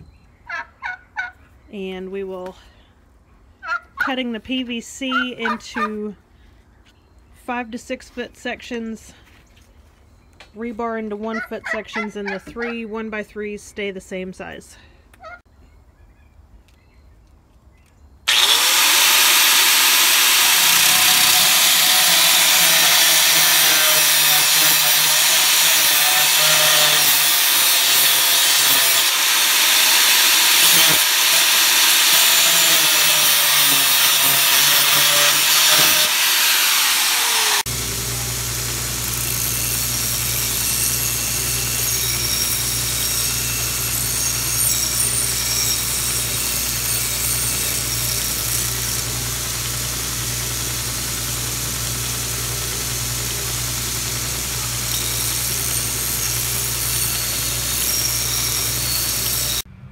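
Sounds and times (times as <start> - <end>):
angle grinder cutting steel: 18.3 - 59.7
bench grinding wheel grinding metal: 18.3 - 59.7.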